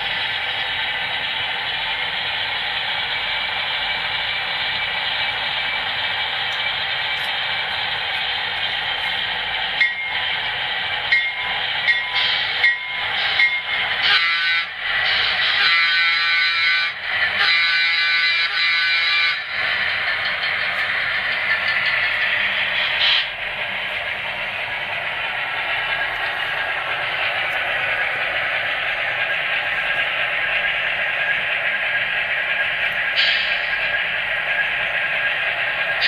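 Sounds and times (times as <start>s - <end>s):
model diesel engine sound: 0.0s - 36.0s
model train wheels on track: 0.0s - 36.0s
train horn blasts: 14.0s - 14.8s, 15.4s - 19.5s.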